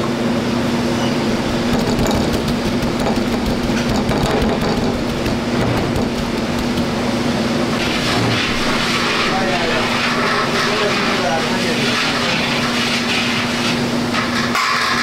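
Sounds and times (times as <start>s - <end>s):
mechanical hum with rushing: 0.0s - 15.0s.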